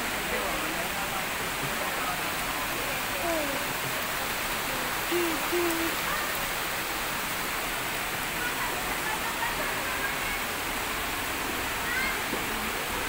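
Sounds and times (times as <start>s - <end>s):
faint voices: 0.0s - 6.8s
waterfall rushing: 0.0s - 13.0s.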